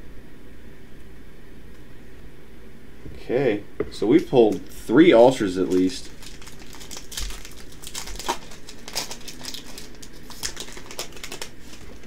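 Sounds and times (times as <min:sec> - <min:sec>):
foil pack crinkling: 0:04.1 - 0:12.0.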